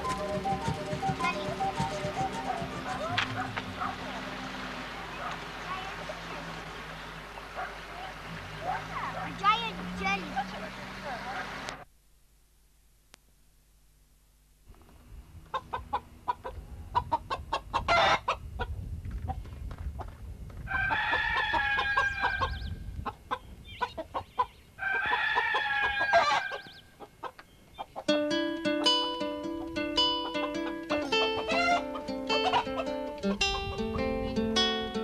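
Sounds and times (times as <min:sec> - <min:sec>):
plucked-string music: 0:00.0 - 0:06.6, 0:28.1 - 0:35.0
chickens clucking: 0:00.0 - 0:11.8, 0:15.5 - 0:19.4, 0:20.7 - 0:29.0, 0:29.6 - 0:34.1
rooster crowing: 0:20.7 - 0:22.6, 0:24.8 - 0:26.7, 0:30.4 - 0:33.0.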